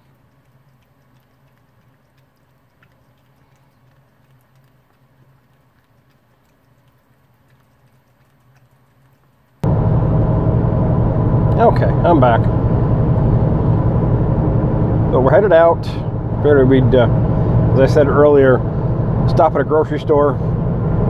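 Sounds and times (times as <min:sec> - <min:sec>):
cat chewing and licking: 0:00.0 - 0:09.6
low steady hum: 0:00.0 - 0:21.0.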